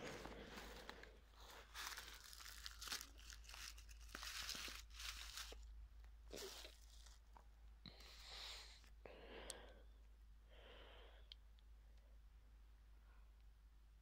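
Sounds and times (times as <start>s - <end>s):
leaves crunching underfoot: 0.0s - 5.7s, 6.3s - 7.3s.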